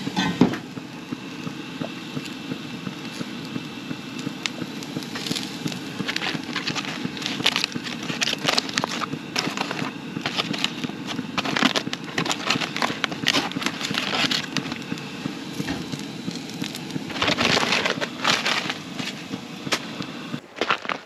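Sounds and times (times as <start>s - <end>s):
aluminium foil crinkling: 4.2s - 21.0s.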